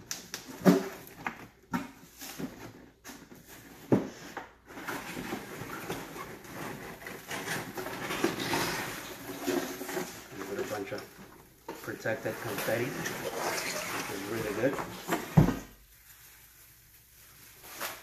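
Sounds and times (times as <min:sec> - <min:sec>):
packing paper rustling: 0:11.8 - 0:18.0.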